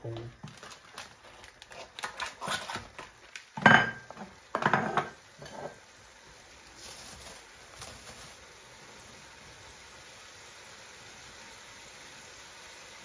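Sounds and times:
pan simmering: 0.0s - 13.0s
metal cookware clanking: 3.6s - 5.8s.

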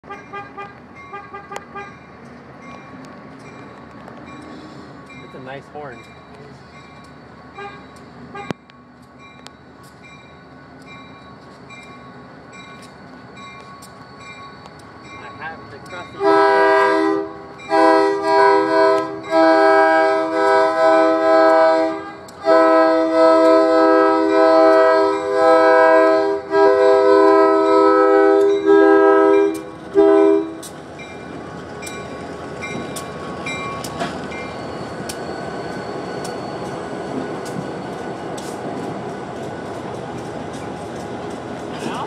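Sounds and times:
locomotive air horn blasts: 0.1s - 2.0s, 7.6s - 8.5s, 16.2s - 30.6s
train wheels clicking on rails: 1.5s - 16.6s, 17.5s - 25.4s, 27.2s - 42.0s.

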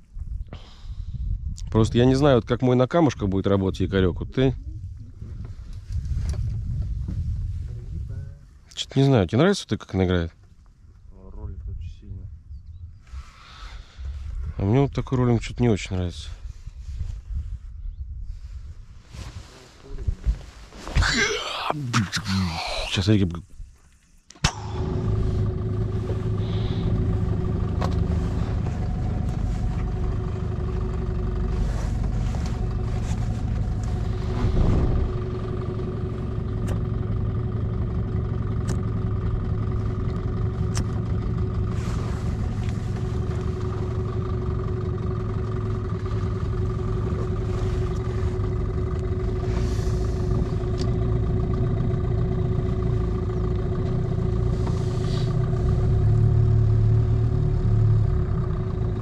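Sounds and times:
outboard motor droning: 24.4s - 59.0s.

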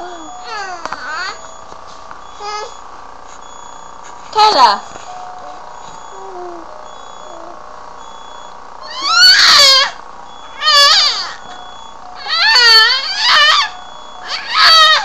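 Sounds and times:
baby squealing: 8.8s - 10.0s, 10.6s - 11.4s, 12.2s - 15.0s.

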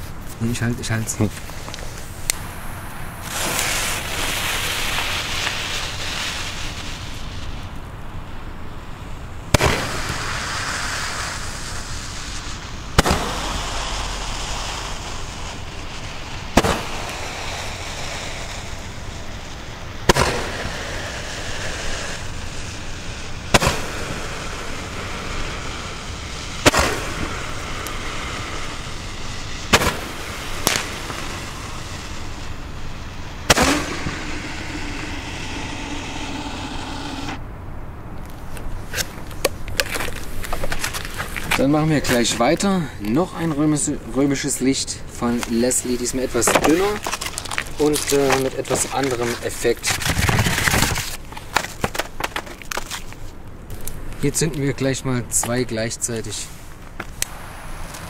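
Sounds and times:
steady hiss: 0.0s - 58.0s
roman candle pops: 29.7s - 31.3s.

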